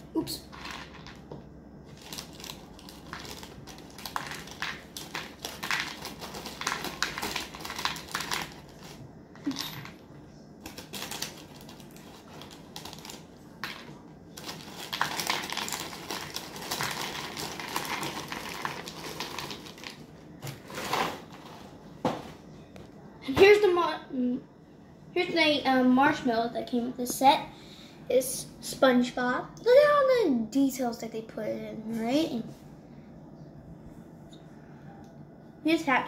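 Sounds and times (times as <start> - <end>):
plastic bag crinkling: 1.8 - 10.0, 10.6 - 21.6
cereal pouring into plastic bowl: 1.9 - 9.0, 14.4 - 20.0
cereal pieces clicking on table: 2.0 - 10.0, 10.6 - 20.0.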